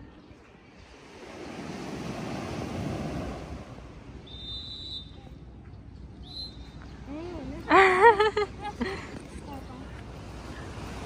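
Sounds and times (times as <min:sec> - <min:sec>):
surf washing onto beach: 0:00.6 - 0:04.3
long high whistle blast: 0:04.2 - 0:05.2.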